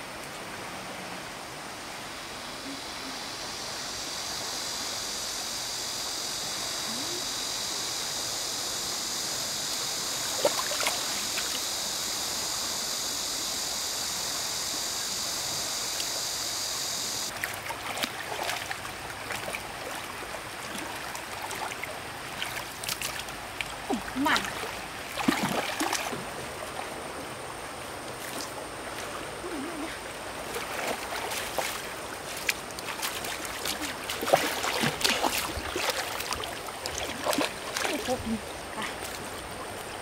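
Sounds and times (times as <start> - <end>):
stream water running: 0.0 - 40.0
high-pitched buzz: 2.6 - 17.3
water splashes: 9.5 - 12.1, 17.2 - 40.0.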